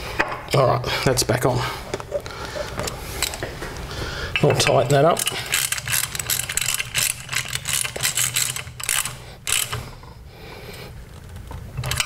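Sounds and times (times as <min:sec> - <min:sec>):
socket ratchet clicking: 0:05.2 - 0:09.8.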